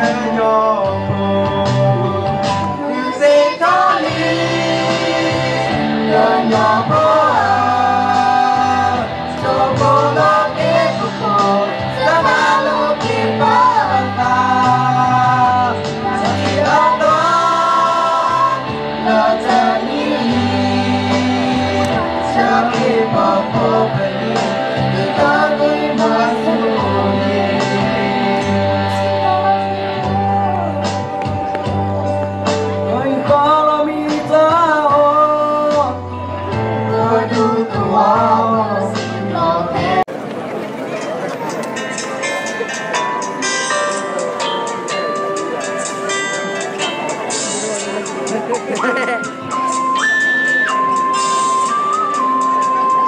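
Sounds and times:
backing music with bass line: 0:00.0 - 0:40.1, 0:41.5 - 0:53.0
children singing into microphones: 0:02.6 - 0:29.5, 0:36.6 - 0:40.0.

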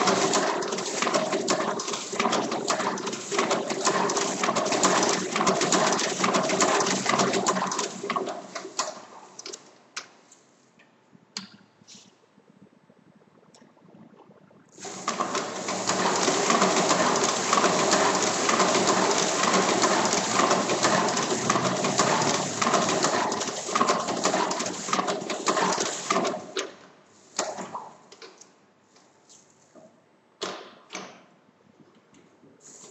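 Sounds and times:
duplicator machine clattering: 0:14.8 - 0:26.2.

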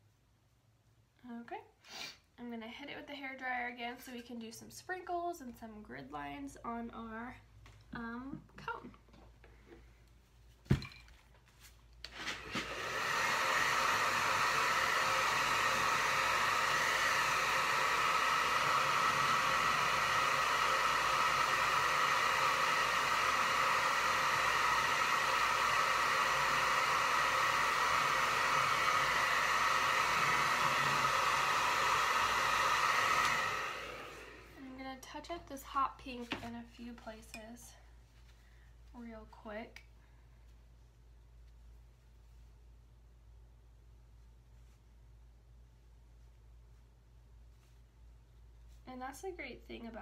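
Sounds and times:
hair dryer running: 0:12.1 - 0:34.8.

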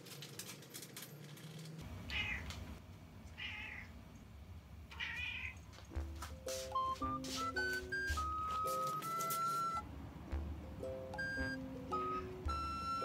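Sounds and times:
cat meowing: 0:02.1 - 0:02.5, 0:03.4 - 0:03.9, 0:04.9 - 0:05.6.

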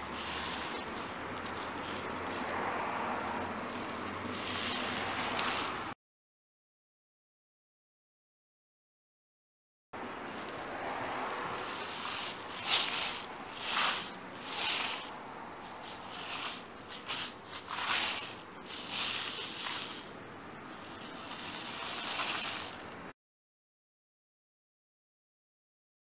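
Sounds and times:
rainstick filling trickling: 0:00.0 - 0:06.0, 0:10.0 - 0:23.1.

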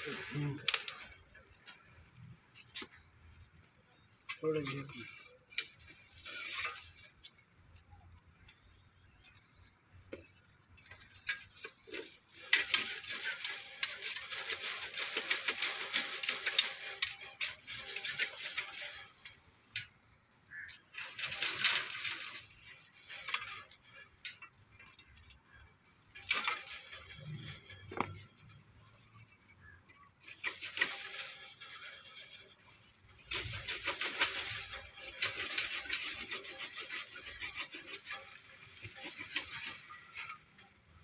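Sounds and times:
hand saw cutting branches: 0:04.4 - 0:07.1, 0:11.0 - 0:19.4, 0:20.8 - 0:23.8, 0:30.2 - 0:40.4.

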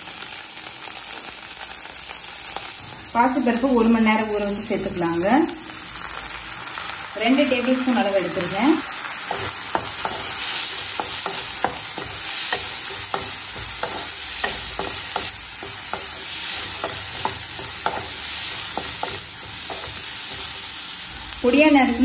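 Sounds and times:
vegetables sizzling in oil: 0:00.0 - 0:22.0
spatula scraping pan: 0:09.2 - 0:20.7.

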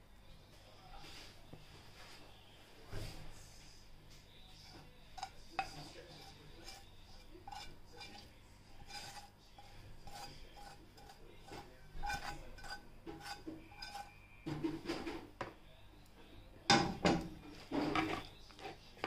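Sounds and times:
spatula scraping a skillet: 0:04.4 - 0:15.2, 0:17.5 - 0:19.0.

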